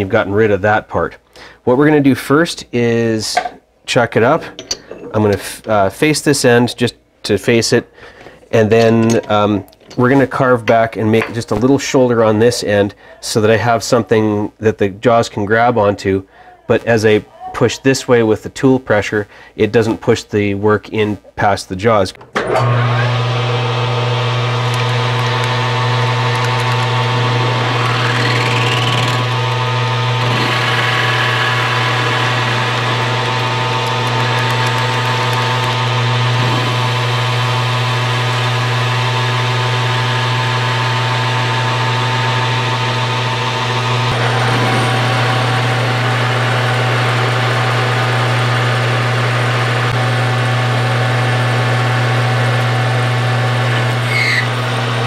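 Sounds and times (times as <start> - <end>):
metal lathe cutting steel: 22.6 - 55.0.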